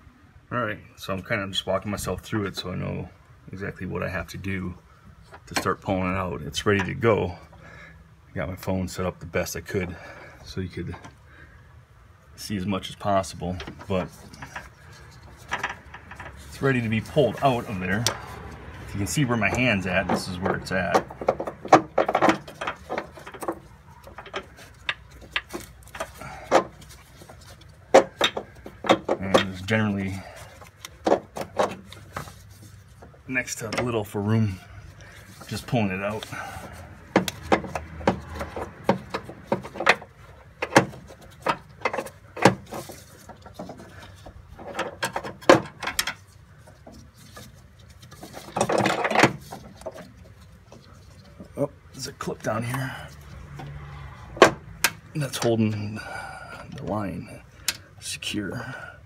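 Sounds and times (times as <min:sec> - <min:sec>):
light clicks and knocks of parts: 0:12.9 - 0:58.9
rustling scrape: 0:13.7 - 0:28.8, 0:29.4 - 0:45.0, 0:46.2 - 0:54.4.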